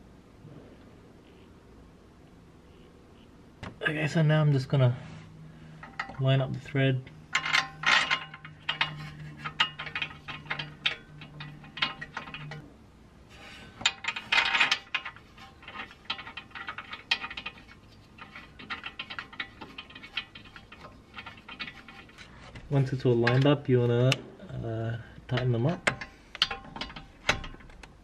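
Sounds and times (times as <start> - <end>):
low steady hum: 0.0 - 28.0
metallic clicks and clinks of bolts: 7.3 - 12.6, 25.4 - 28.0.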